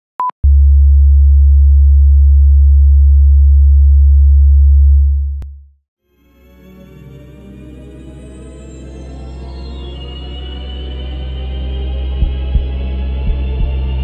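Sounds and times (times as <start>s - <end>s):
low sine test tone: 0.2s - 5.7s.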